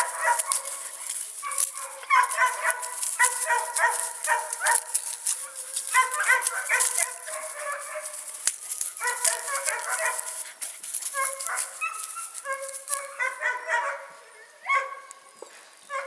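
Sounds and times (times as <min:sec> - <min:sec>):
rustle of dry grass and leaves: 0:00.0 - 0:13.5
puppy yipping and whining: 0:11.1 - 0:13.6.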